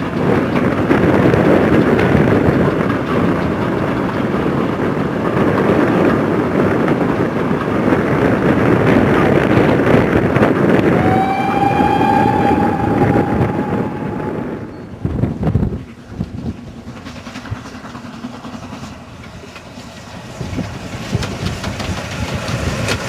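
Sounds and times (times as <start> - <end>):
wind on microphone: 0.0 - 18.8
coaches rumbling on rails: 0.0 - 23.0
steam locomotive exhaust chuff: 7.8 - 23.0
train whistle: 10.8 - 15.0.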